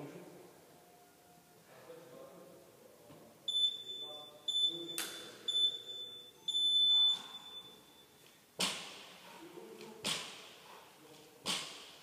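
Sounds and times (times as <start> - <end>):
timer beeps: 3.5 - 8.2.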